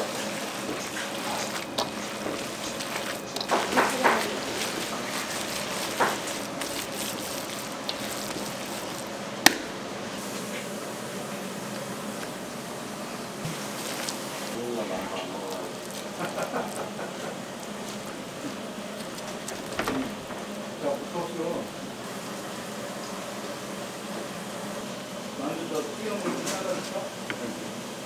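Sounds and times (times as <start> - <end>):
kitchen clattering: 0.6 - 9.0.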